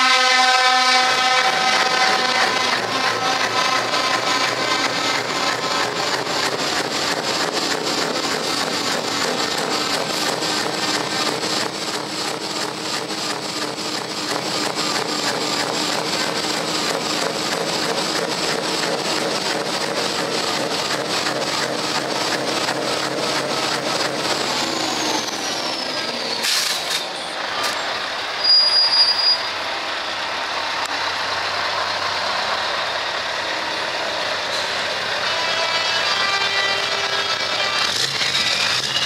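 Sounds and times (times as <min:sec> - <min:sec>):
truck driving off: 0:01.1 - 0:39.0
air brakes hissing: 0:25.9 - 0:27.2
diesel truck engine idling: 0:29.6 - 0:35.2.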